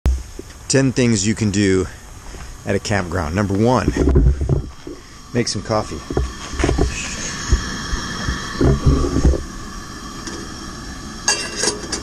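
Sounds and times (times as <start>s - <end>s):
gas stove hissing: 0.1s - 12.0s
wind buffeting microphone: 2.1s - 11.3s.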